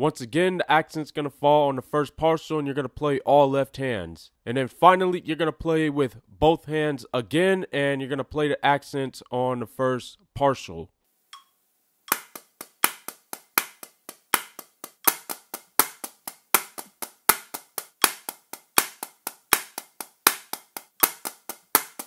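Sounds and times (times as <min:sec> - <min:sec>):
drumsticks on practice pad: 0:12.1 - 0:22.0.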